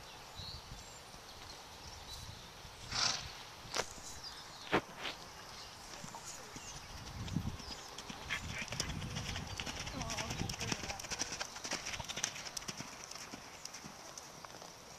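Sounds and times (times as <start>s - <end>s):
muffled hoofbeats on sand: 6.0s - 14.8s.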